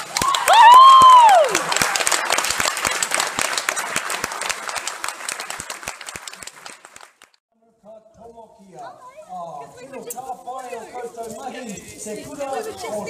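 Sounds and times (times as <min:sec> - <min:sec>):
children applauding: 0:00.0 - 0:07.4.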